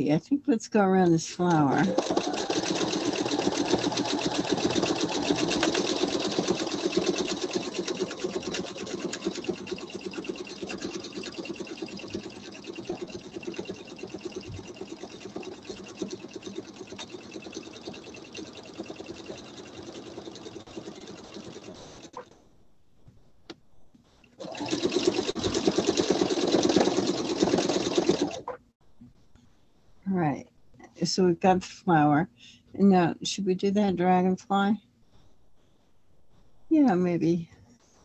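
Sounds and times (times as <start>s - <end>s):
sewing machine stitching fast: 1.6s - 22.2s, 24.4s - 28.5s.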